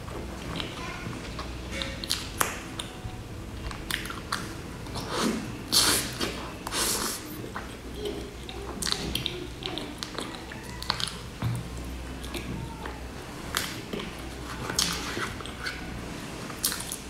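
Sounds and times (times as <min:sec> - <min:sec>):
wet chewing and lip smacking: 0:03.7 - 0:15.8.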